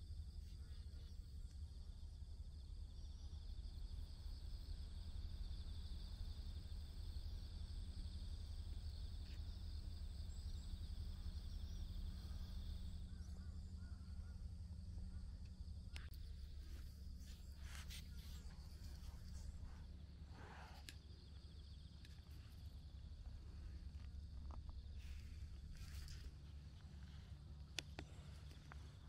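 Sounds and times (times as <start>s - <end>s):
low steady rumble: 0.0s - 29.0s
pulsing insect trill: 0.0s - 29.0s
faint clicks: 20.5s - 29.0s.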